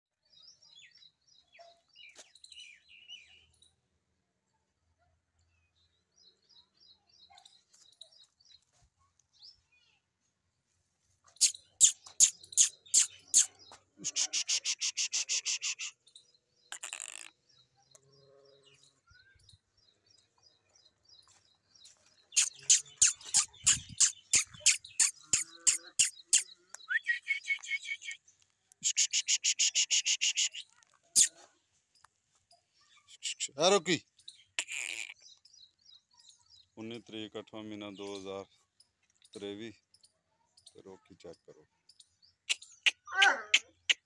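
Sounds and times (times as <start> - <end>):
birds chirping: 11.2 - 44.0.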